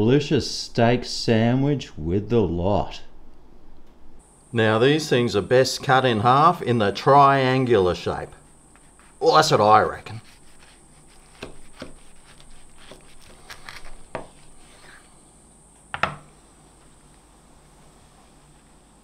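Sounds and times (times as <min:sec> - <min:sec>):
knife sawing through toasted sandwich: 0:10.1 - 0:15.1.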